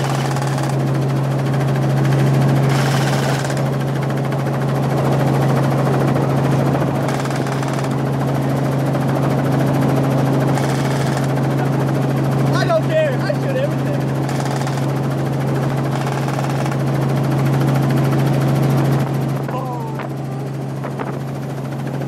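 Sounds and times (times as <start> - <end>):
helicopter rotor and engine drone: 0.0 - 22.0.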